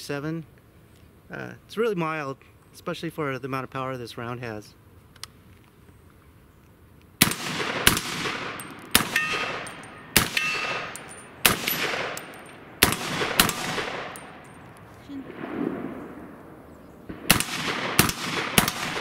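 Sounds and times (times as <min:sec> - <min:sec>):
gunshots with echo: 0:07.2 - 0:14.5, 0:15.2 - 0:19.0.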